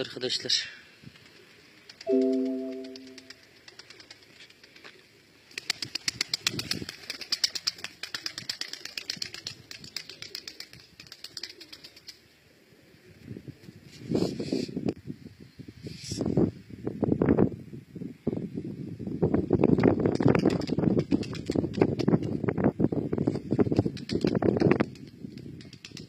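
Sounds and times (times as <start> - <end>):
pigeon wings flapping: 1.1 - 2.0, 2.8 - 12.2, 19.6 - 22.5, 23.3 - 26.0
loud low steady tone: 2.1 - 3.4.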